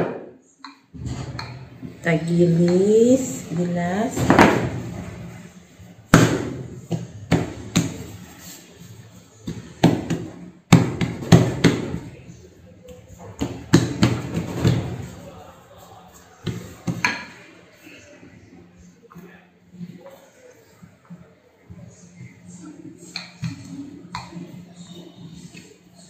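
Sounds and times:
quiet dough handling: 0:04.7 - 0:26.0
hands slapping dough: 0:06.1 - 0:08.5, 0:09.4 - 0:12.1.

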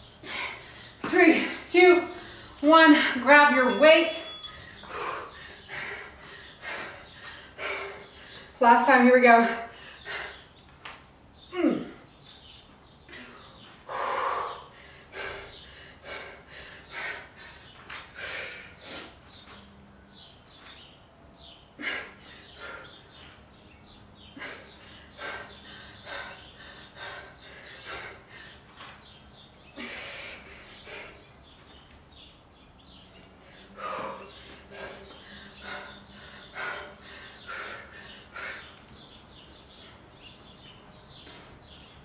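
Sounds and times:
woman breathing hard: 0:00.1 - 0:01.0, 0:02.1 - 0:03.2, 0:04.5 - 0:08.6, 0:09.6 - 0:10.6, 0:13.1 - 0:19.2, 0:21.8 - 0:23.5, 0:24.2 - 0:31.5, 0:33.2 - 0:39.1.

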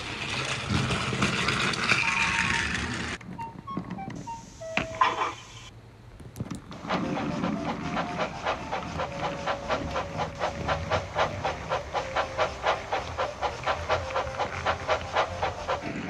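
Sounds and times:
toy steam engine chuffing: 0:00.0 - 0:03.2, 0:06.7 - 0:16.0.

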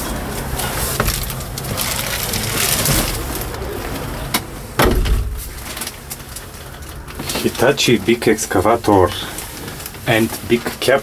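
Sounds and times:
rustling and handling noise: 0:00.0 - 0:11.0
heavy thump: 0:04.8 - 0:05.7.

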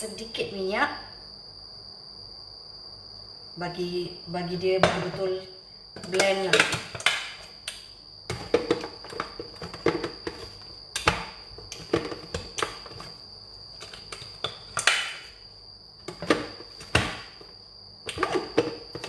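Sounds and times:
blender jar clunking on base: 0:08.3 - 0:13.1, 0:16.1 - 0:17.3.

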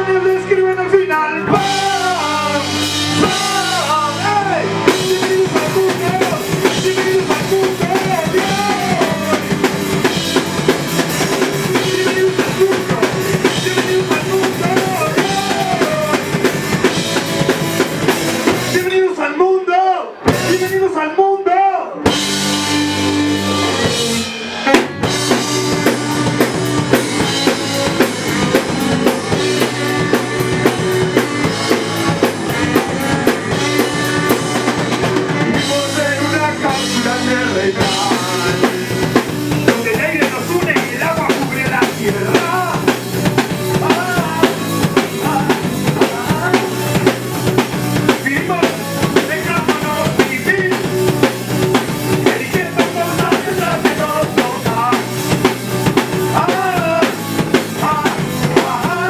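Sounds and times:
drum kit beat: 0:00.0 - 0:19.0, 0:20.2 - 0:20.9, 0:22.0 - 0:59.0
saxophone playing: 0:22.6 - 0:35.5.

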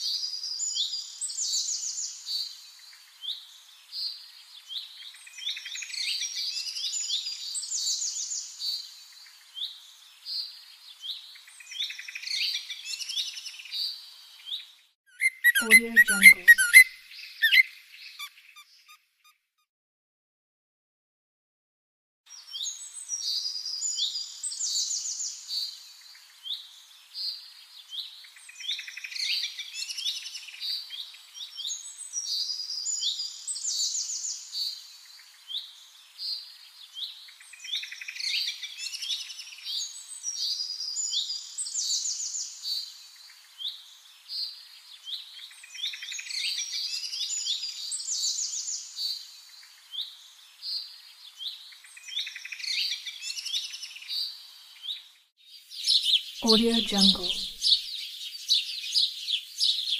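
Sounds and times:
songbirds chirping and trilling: 0:13.9 - 0:19.0.

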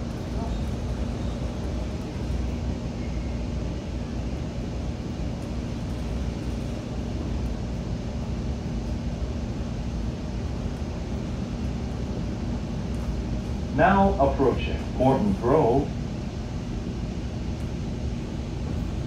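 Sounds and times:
steady hum: 0:00.0 - 0:19.0
train wheels rumbling on rails: 0:00.0 - 0:19.0.

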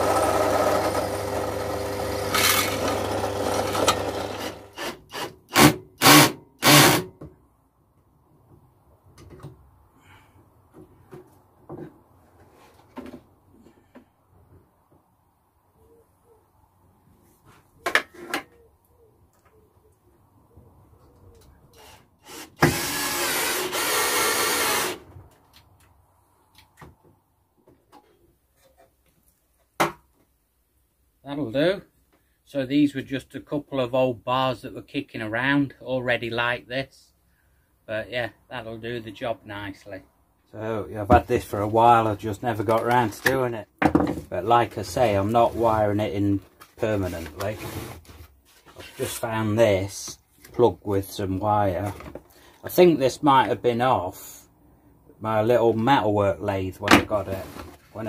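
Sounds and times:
drill press cutting steel: 0:00.0 - 0:07.1
faint handling sounds: 0:44.8 - 0:49.3.

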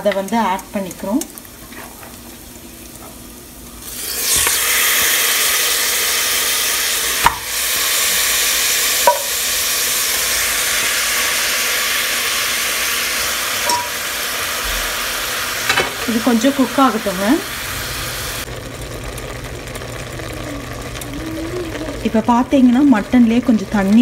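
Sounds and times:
meat sizzling in hot oil: 0:00.0 - 0:24.0
sharp knocks against pot: 0:07.2 - 0:07.5, 0:09.0 - 0:09.4, 0:13.6 - 0:14.0.

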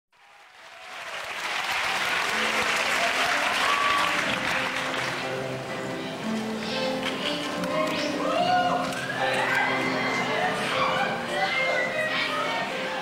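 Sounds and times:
audience applauding: 0:00.2 - 0:05.5.

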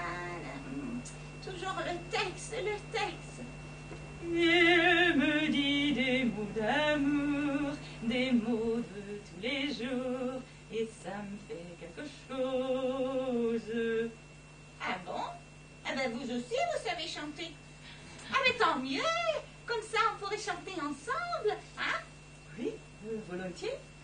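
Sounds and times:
woman singing operatically: 0:00.0 - 0:03.2, 0:04.2 - 0:14.1.

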